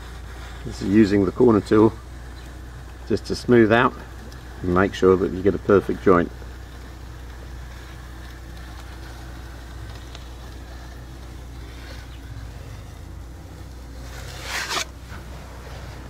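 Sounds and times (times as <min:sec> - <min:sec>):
low rumble: 0:01.4 - 0:16.0
plastic tool scraping plaster: 0:14.0 - 0:15.2.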